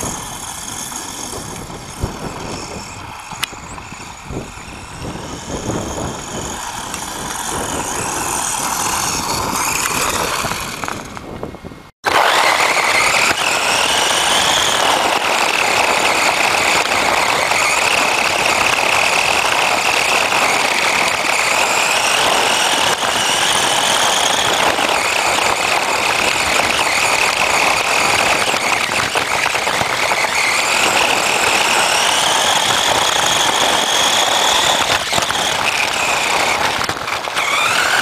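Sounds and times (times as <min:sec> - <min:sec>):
constant rushing rattle: 0:00.0 - 0:38.0
rc car motor and gear whine: 0:00.0 - 0:38.0.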